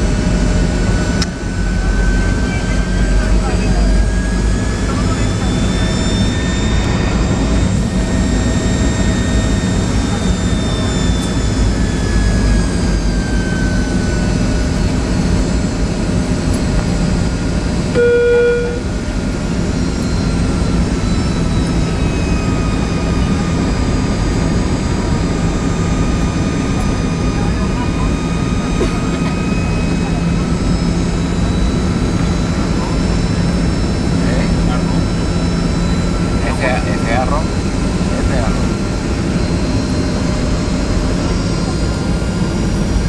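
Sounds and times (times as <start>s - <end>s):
airliner cabin rumble and air rush: 0.0s - 43.0s
faint jet engine whine: 0.0s - 43.0s
short electronic beep: 17.9s - 18.9s.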